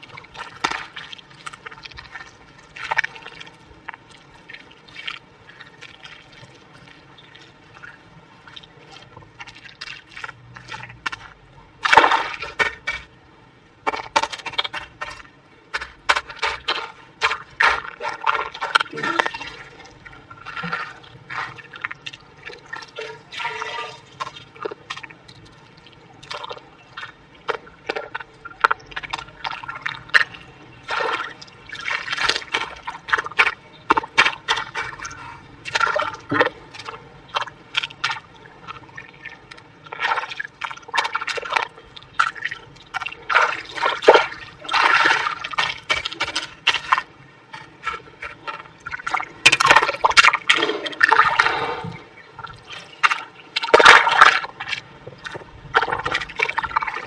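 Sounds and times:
hands squelching and slapping mud: 8.5s - 13.1s, 13.8s - 19.7s, 26.2s - 51.8s, 52.6s - 57.0s.

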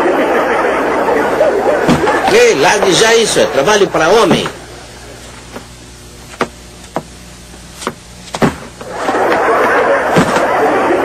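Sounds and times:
studio audience laughter: 0.0s - 2.3s, 8.8s - 11.0s
suitcase knocking on floor: 7.8s - 8.7s.

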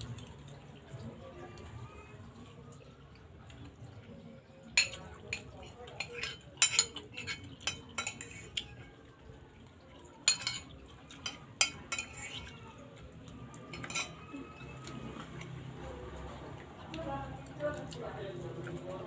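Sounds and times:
metal spoon clinking on ceramic bowl: 4.8s - 8.7s, 10.2s - 12.5s, 13.7s - 14.2s.

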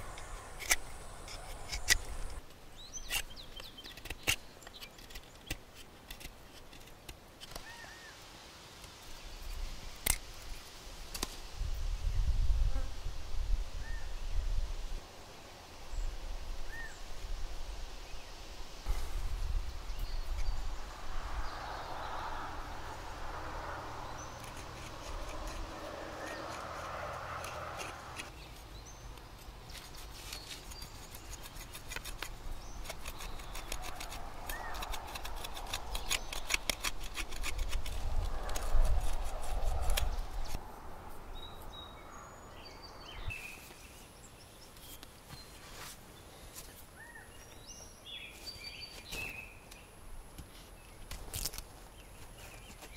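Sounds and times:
knife whittling wood: 24.2s - 28.3s.

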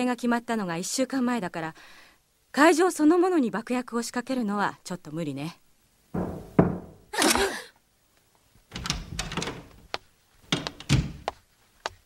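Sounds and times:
door opening: 6.2s - 7.1s, 8.7s - 9.8s, 10.5s - 11.2s
knocks and thuds: 6.2s - 7.1s.

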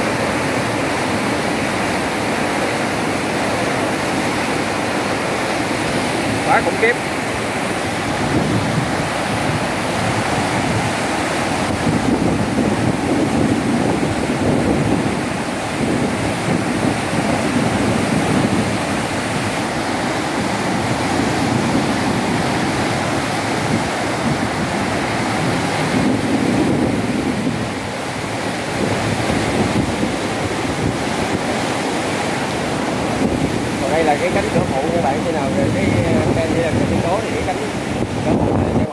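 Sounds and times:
water rushing through sluice gate: 0.0s - 38.9s.

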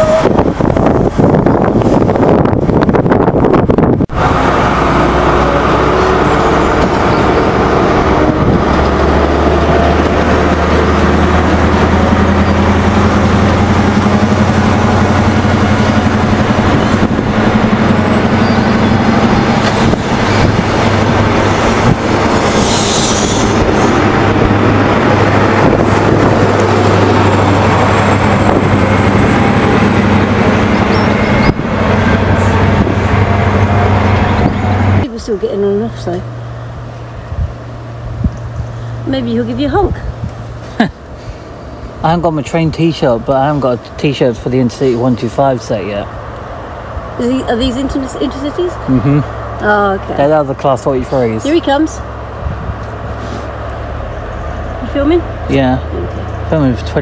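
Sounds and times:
diesel engine drone: 0.0s - 57.0s
train wheels rumbling on rails: 0.0s - 57.0s
high-pitched squeal: 19.6s - 24.2s.

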